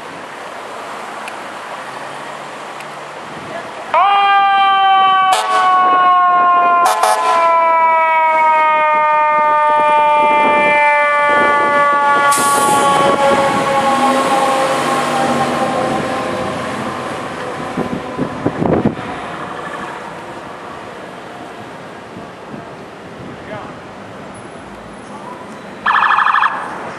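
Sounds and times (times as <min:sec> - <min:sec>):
short sharp siren blasts: 0:04.0 - 0:16.4, 0:25.8 - 0:26.7
truck engine pulling away: 0:11.4 - 0:21.4.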